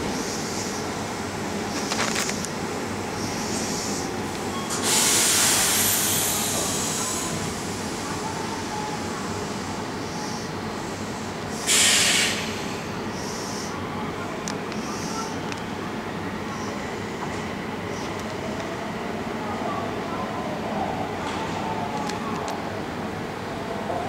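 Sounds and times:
train steady hum: 0.0 - 24.0
compressed air hissing: 3.2 - 7.4, 11.1 - 13.8.

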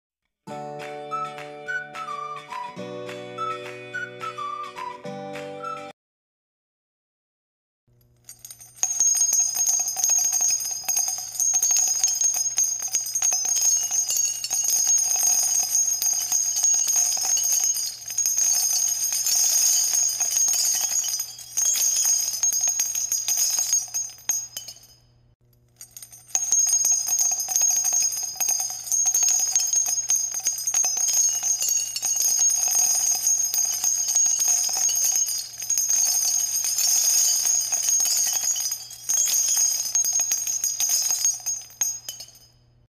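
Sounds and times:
jingle bells shaking: 8.3 - 25.0, 25.8 - 42.6.

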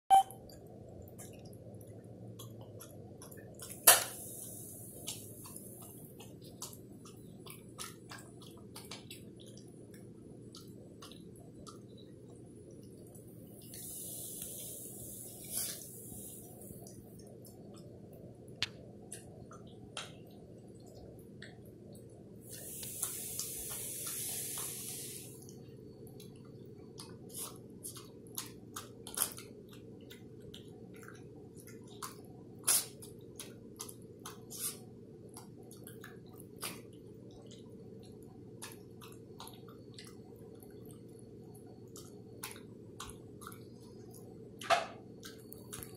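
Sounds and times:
steady low hum: 0.1 - 45.9
dog chewing and licking food: 0.4 - 45.9
soft hiss: 22.5 - 25.5.

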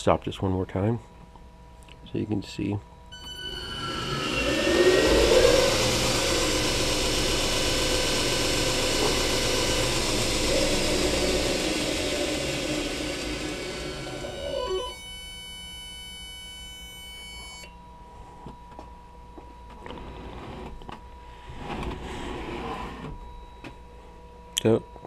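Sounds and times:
high electrical hum: 0.0 - 25.0
belt grinder spinning down: 3.2 - 15.0.

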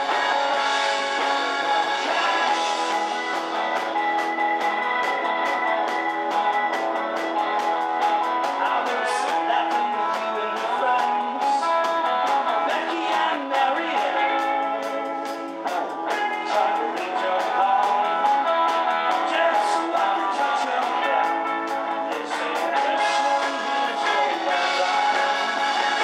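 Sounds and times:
man singing: 0.0 - 3.2, 8.4 - 26.0
rock band playing: 0.0 - 26.0.

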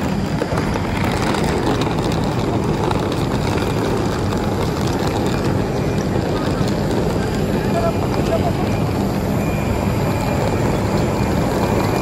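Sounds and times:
aircraft engines running: 0.0 - 12.0.

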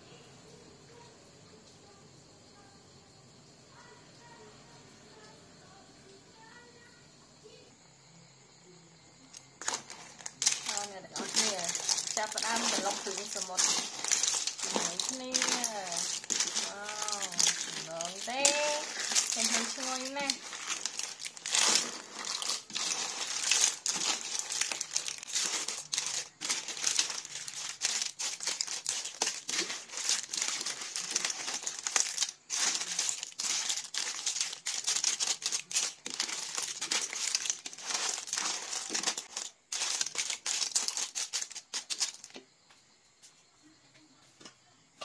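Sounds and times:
clam shells clattering in pot: 9.3 - 42.4.

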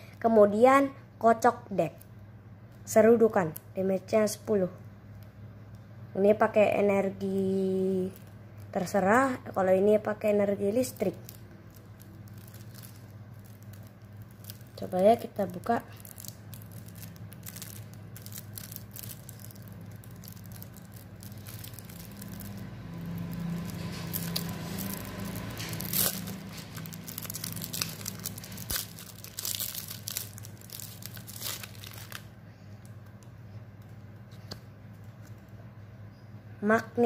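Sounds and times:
plastic wrapping tearing and crinkling: 7.2 - 33.3.

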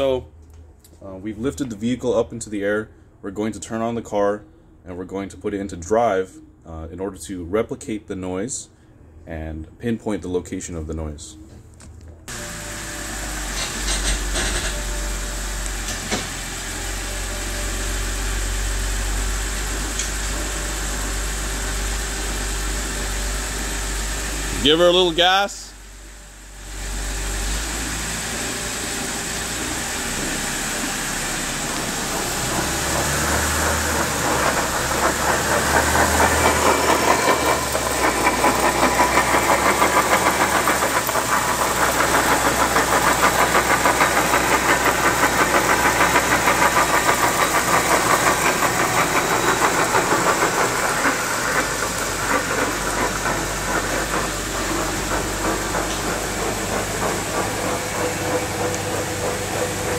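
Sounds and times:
rhythmic grinding and knocking: 29.3 - 59.9.

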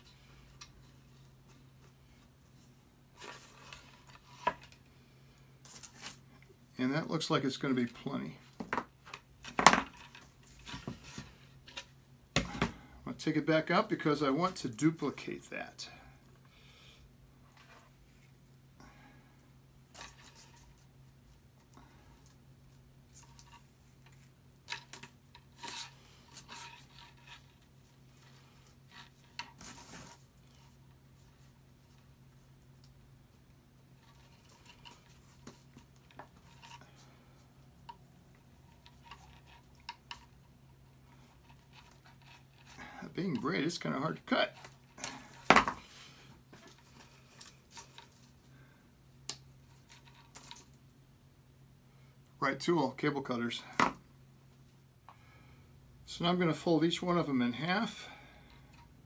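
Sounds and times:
metal wire scraping on wood: 23.1 - 30.6, 38.6 - 43.0.

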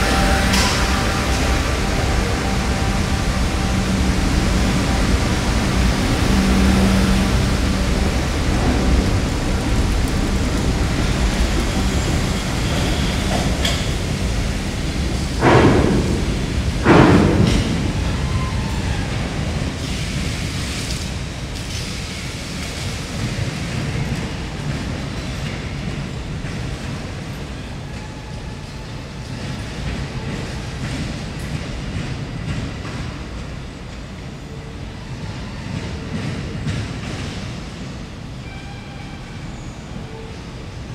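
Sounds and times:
train wheels rumbling on rail: 0.0 - 40.9.

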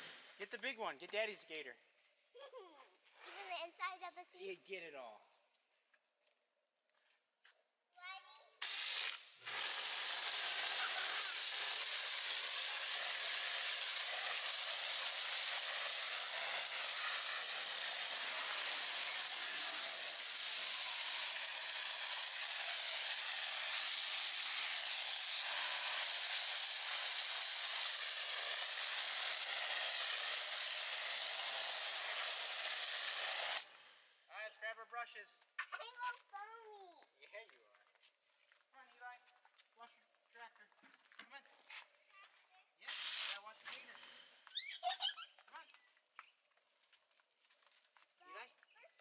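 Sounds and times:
pressure washer spraying foam: 0.0 - 0.4, 8.6 - 34.1, 42.8 - 44.3.

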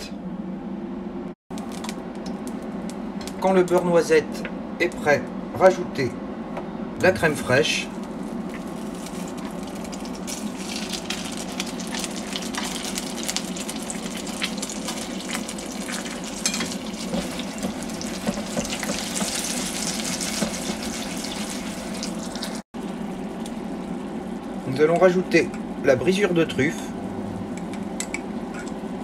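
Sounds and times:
butter sizzling in a pan: 8.1 - 22.6.

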